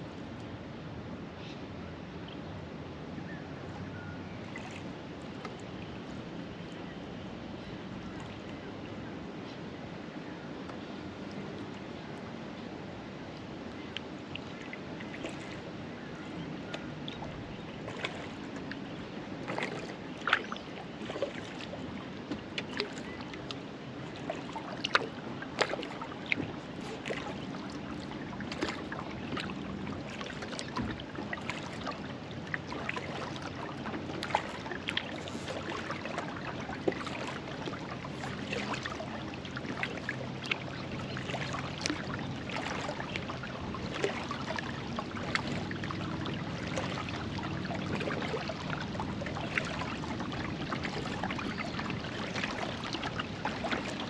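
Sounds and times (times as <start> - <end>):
low wash of water: 0.0 - 54.0
water splashes and drips: 4.5 - 5.9, 13.3 - 15.7, 16.7 - 54.0.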